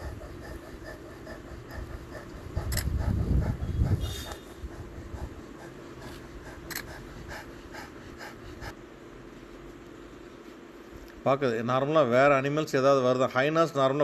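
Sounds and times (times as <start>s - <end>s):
cheetah panting: 0.0s - 8.8s.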